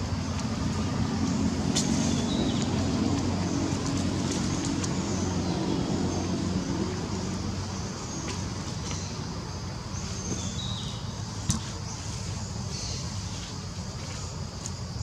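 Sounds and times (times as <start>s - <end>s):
vehicle engine humming: 0.0s - 14.8s.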